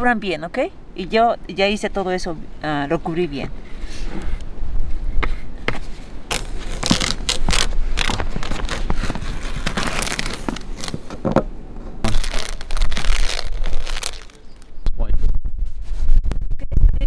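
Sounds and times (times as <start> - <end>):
tape ripping and crackling: 6.3 - 11.2, 12.0 - 14.7
wind rumble on microphone: 14.6 - 17.0.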